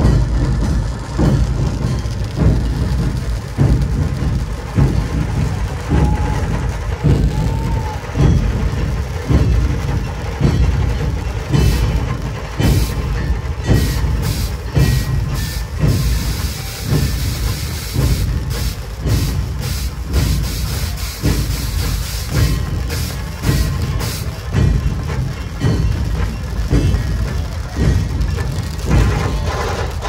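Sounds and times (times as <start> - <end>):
deep booming beat: 0.0 - 30.0
hissing gas jet blasts: 12.6 - 24.6.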